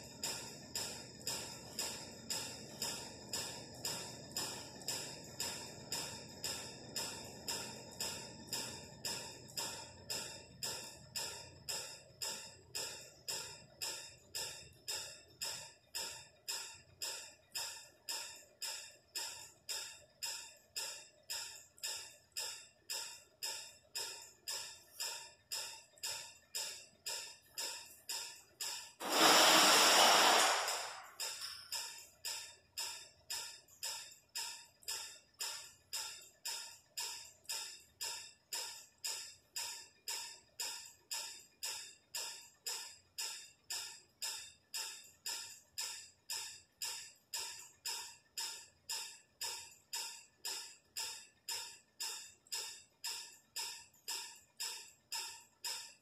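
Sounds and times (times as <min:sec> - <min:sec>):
steady ticking beat: 0:00.0 - 0:56.0
burst of hiss: 0:29.0 - 0:31.1.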